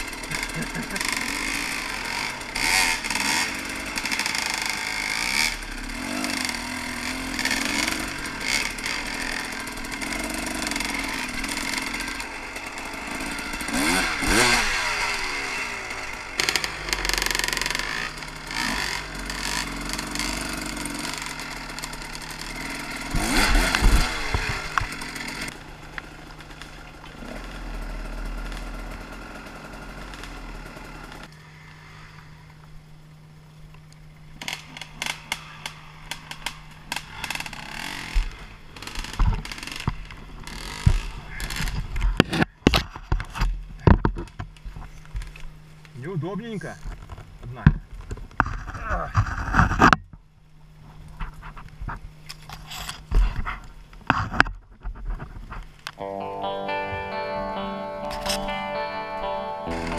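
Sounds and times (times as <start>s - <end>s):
motorbike engine revving: 0.0s - 32.4s, 34.4s - 43.4s, 56.0s - 59.9s.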